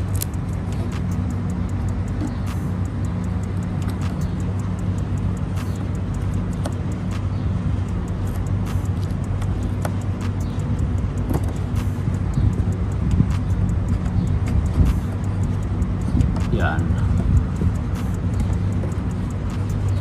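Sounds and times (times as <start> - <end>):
duct tape crinkling: 0.0 - 0.5
motor humming: 0.0 - 20.0.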